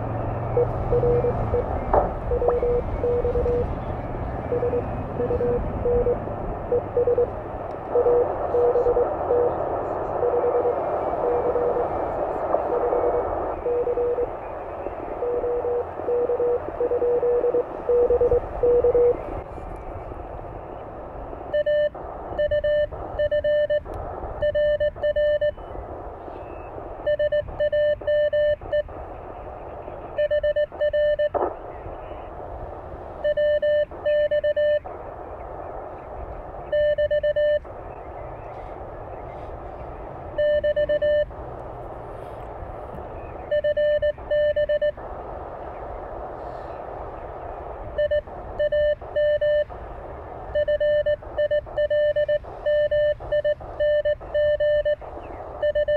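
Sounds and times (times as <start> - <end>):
morse code signal: 0.0 - 19.4, 21.4 - 29.0, 29.8 - 32.3, 33.2 - 35.0, 36.6 - 39.4, 40.3 - 41.4, 43.2 - 45.0, 47.8 - 49.8, 50.5 - 55.9
receiver hiss: 0.0 - 55.9
morse code sidetone: 0.5 - 3.7, 4.4 - 7.3, 7.9 - 12.0, 12.6 - 14.3, 15.1 - 19.3, 21.5 - 25.8, 26.4 - 28.9, 30.2 - 31.4, 33.2 - 34.9, 36.6 - 37.7, 40.4 - 41.3, 43.4 - 45.0, 48.0 - 49.7, 50.5 - 55.9.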